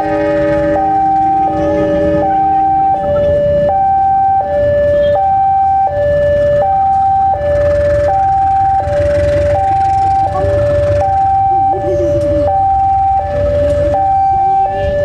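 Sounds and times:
diesel locomotive pulling away: 0.0s - 3.0s
level crossing alarm alternating tones: 0.0s - 15.0s.

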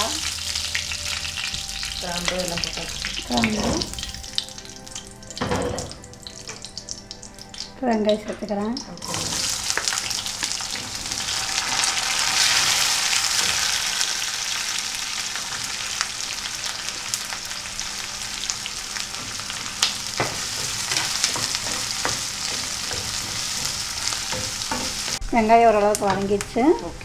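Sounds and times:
onions sizzling in hot oil: 0.0s - 27.0s
wooden spatula scraping and tapping: 20.2s - 25.2s.

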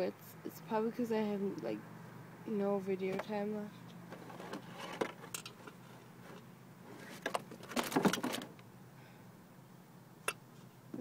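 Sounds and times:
faint steady hum: 0.0s - 11.0s
phone rustling and clicking: 4.0s - 8.6s.

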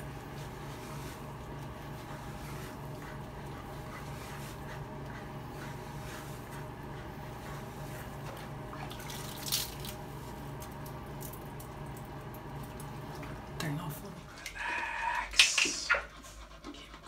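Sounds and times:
brush scrubbing wet fur: 0.0s - 10.6s
steady low hum: 0.0s - 17.0s.

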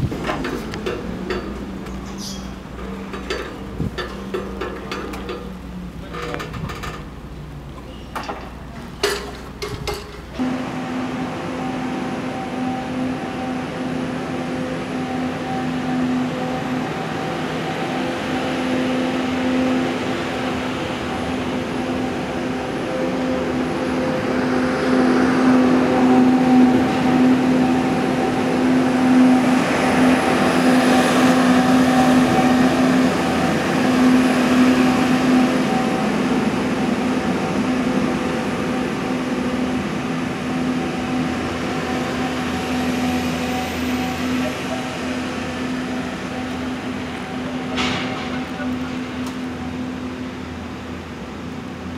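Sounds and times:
construction site noise: 0.0s - 51.9s
machinery drone: 0.0s - 51.9s.

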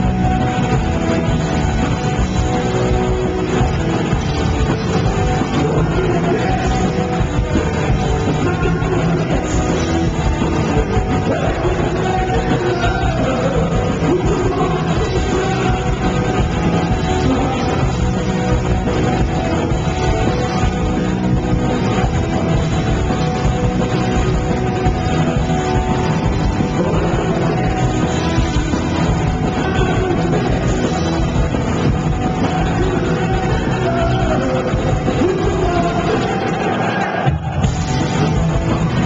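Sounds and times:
punk rock band playing live: 0.0s - 39.0s
lead vocal singing: 5.3s - 19.1s, 26.6s - 31.4s, 32.2s - 37.7s.

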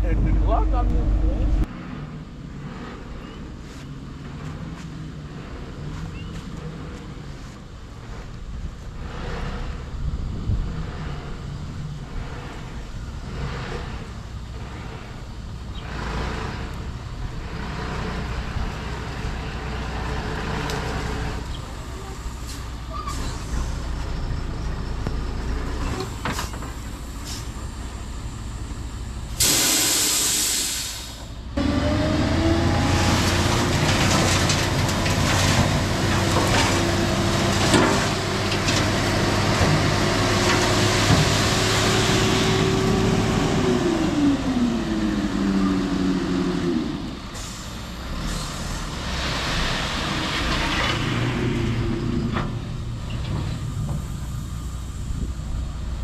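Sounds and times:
heavy diesel engine running: 0.0s - 3.1s, 4.2s - 56.0s
air release hiss: 29.4s - 31.3s.

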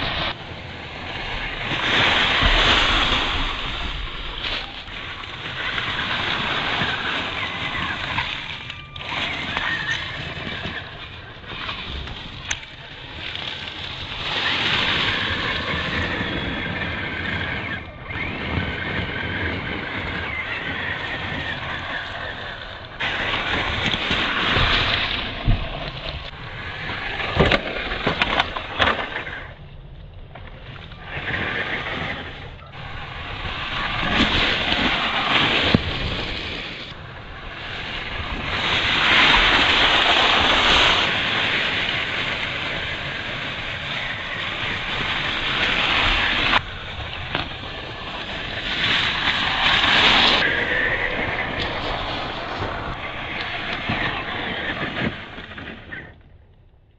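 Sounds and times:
tyres crunching leaves: 0.0s - 29.4s
toy truck electric motor: 1.8s - 29.6s, 30.8s - 55.6s.

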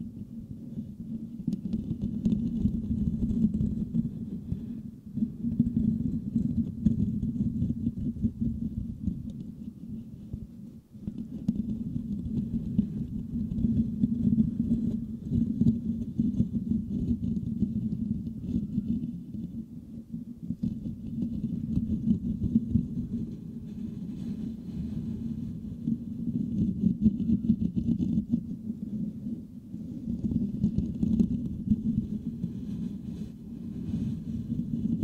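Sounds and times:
fingertips scratching microphone grille: 29.9s - 35.0s.

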